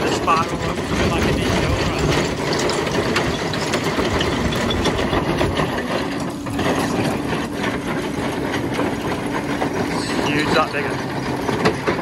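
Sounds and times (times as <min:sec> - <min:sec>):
excavator diesel engine: 0:00.0 - 0:12.0.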